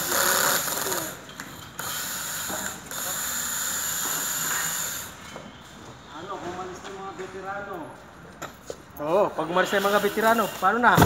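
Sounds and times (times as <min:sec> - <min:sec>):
cordless drill driving screws: 0:00.0 - 0:01.2.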